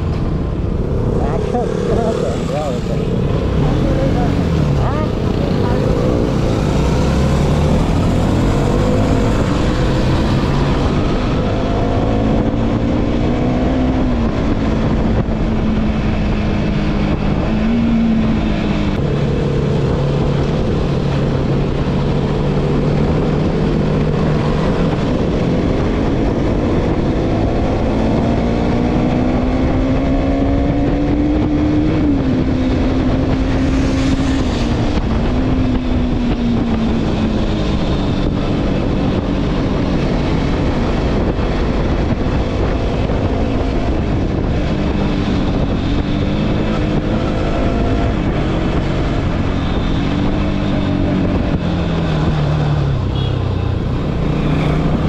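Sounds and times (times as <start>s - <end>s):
motorcycle engine running: 0.0s - 13.0s
wind rushing over microphone: 0.0s - 55.0s.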